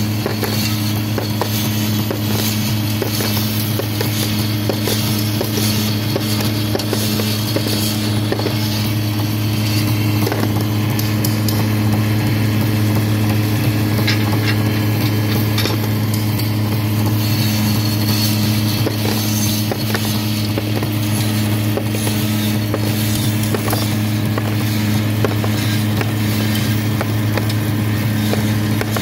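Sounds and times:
electric cutting machine humming: 0.0s - 29.0s.

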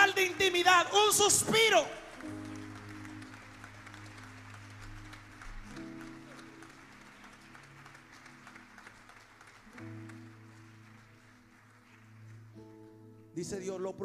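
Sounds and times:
soft background music chords: 0.0s - 14.0s.

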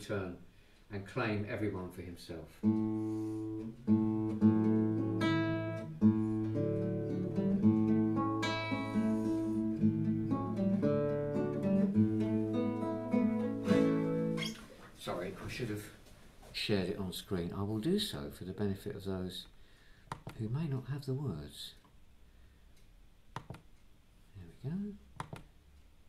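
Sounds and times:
acoustic guitar strumming chords: 2.6s - 14.6s.

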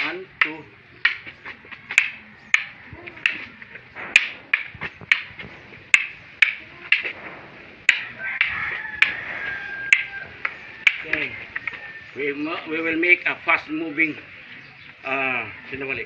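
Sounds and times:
wooden sticks clacking together: 0.0s - 12.0s.

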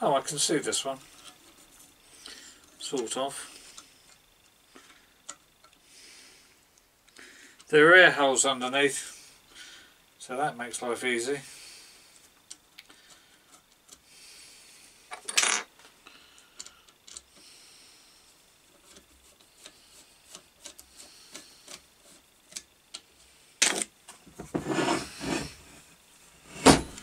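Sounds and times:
metal casing rubbing on bench: 24.5s - 26.9s.

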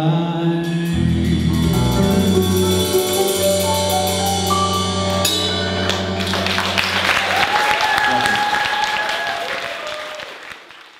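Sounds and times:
drum kit strikes: 0.6s - 8.2s
live band holding a chord: 0.6s - 9.4s
people clapping: 5.8s - 10.9s.

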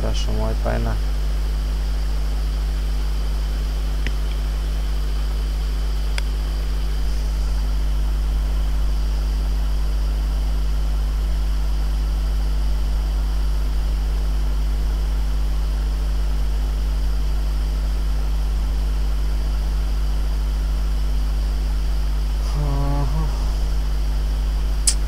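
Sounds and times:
low hum: 0.0s - 25.0s
hiss: 22.4s - 23.8s.

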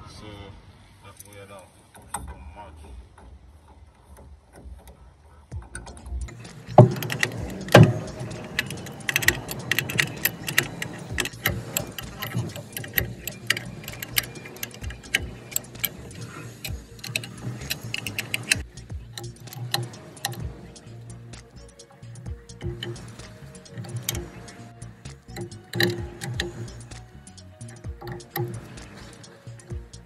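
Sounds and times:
wrench clicking on a nut: 5.8s - 30.0s
sharp metal knocks: 6.3s - 20.8s.

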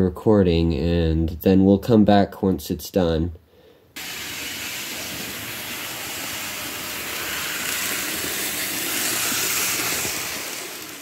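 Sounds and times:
model locomotive motor whirring: 4.0s - 11.0s.

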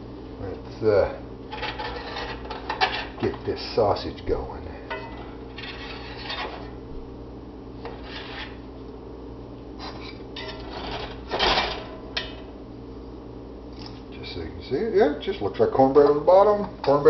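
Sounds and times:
steady low hum: 0.0s - 17.0s
kitchenware scraping and clattering: 1.5s - 3.8s, 4.8s - 6.8s, 9.8s - 12.4s.

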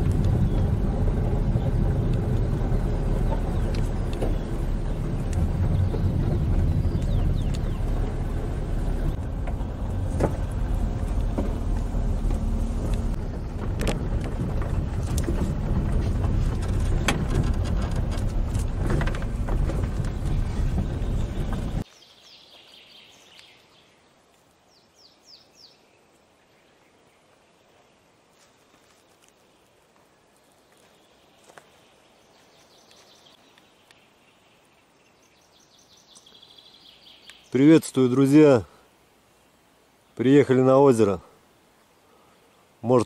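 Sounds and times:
knocks and rattles in car: 0.0s - 21.8s
car driving on bumpy dirt track: 0.0s - 21.9s
bird chirps: 1.6s - 9.0s, 20.0s - 24.1s, 30.7s - 37.8s.

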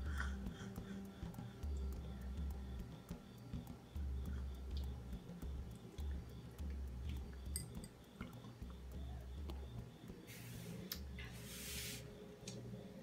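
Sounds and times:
short hissy sounds: 10.3s - 12.1s.

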